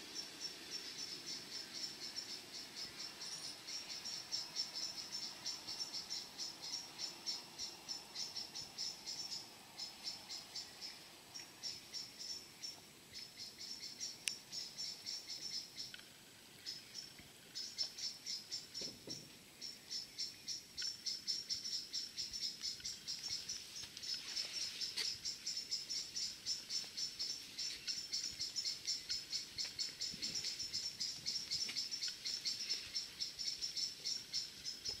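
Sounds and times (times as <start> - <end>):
insect chirping: 0.0 - 35.0.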